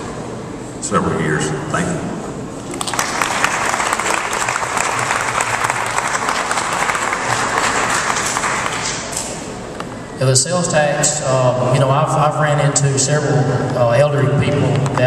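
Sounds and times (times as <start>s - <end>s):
audience applauding: 2.6s - 9.5s.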